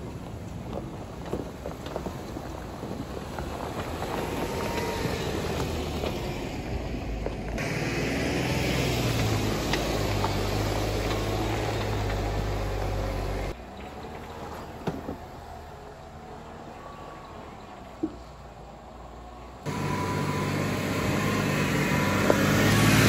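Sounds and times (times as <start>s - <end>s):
tyres crunching over gravel: 0.0s - 15.8s
car engine at low revs: 16.4s - 23.0s.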